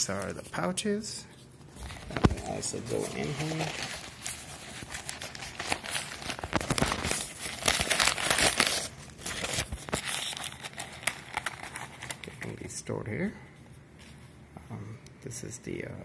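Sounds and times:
plastic packet crinkling: 0:01.8 - 0:12.6.

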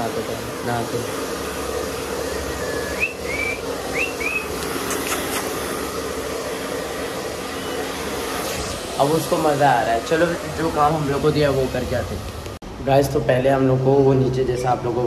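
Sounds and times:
hair dryer running: 0:00.0 - 0:12.6
high whistle-like chirps: 0:02.2 - 0:04.6.

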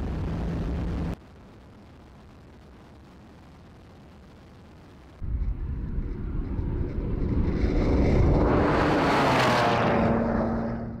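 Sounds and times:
car engine driving past: 0:05.4 - 0:11.0.

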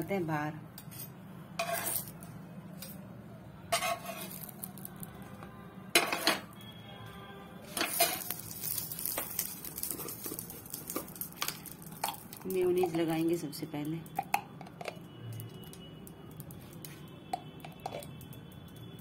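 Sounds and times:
metal utensil scraping iron griddle: 0:01.6 - 0:02.1, 0:03.7 - 0:04.6, 0:07.6 - 0:10.8.

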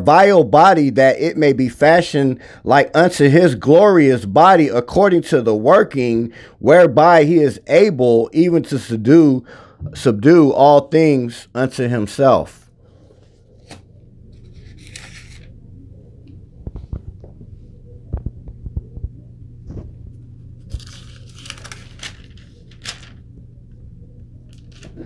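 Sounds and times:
steady low hum: 0:00.0 - 0:25.0
paper pages rustling: 0:12.9 - 0:15.6, 0:20.6 - 0:23.3, 0:24.5 - 0:25.0.

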